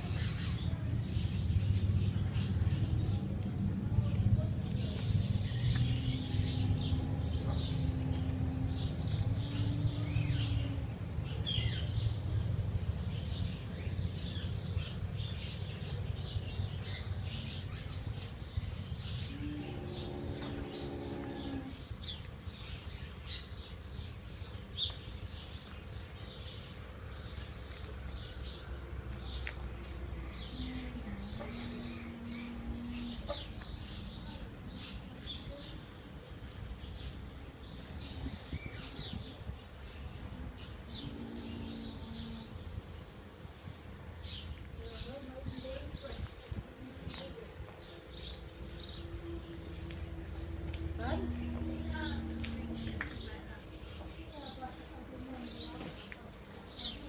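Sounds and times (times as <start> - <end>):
low rumble: 0.0 - 14.9, 16.2 - 21.8, 47.8 - 55.4
birds chirping: 0.0 - 43.2, 44.1 - 57.0.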